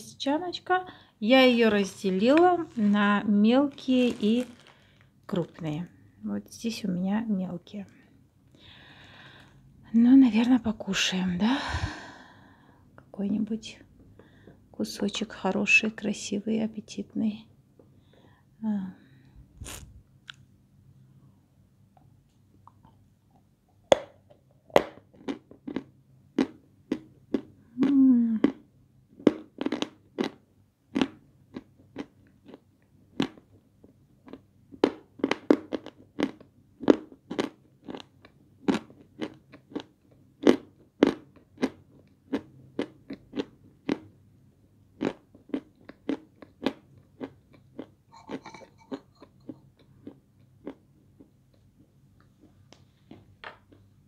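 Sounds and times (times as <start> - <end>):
crunching and chewing clay: 3.6 - 5.7, 24.0 - 44.2, 44.9 - 53.9.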